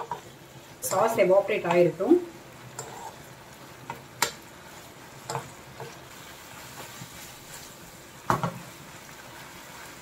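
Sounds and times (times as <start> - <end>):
prawns sizzling in a wok: 0.0 - 10.0
metal spatula scraping a pan: 2.8 - 3.3.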